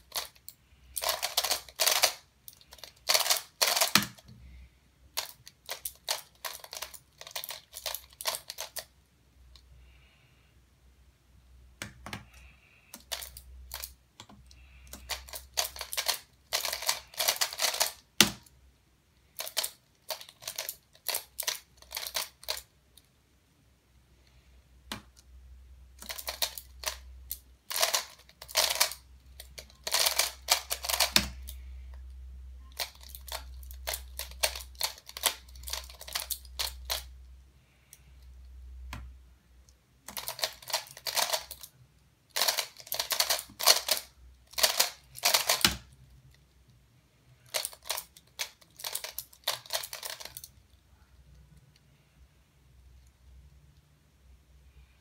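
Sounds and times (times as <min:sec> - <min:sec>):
plastic puzzle clicking: 0:00.0 - 0:04.4, 0:05.1 - 0:08.9, 0:11.8 - 0:18.5, 0:19.3 - 0:23.1, 0:24.9 - 0:25.2, 0:26.0 - 0:37.1, 0:40.1 - 0:41.7, 0:42.3 - 0:46.4, 0:47.4 - 0:50.8
low steady hum: 0:00.0 - 0:55.0.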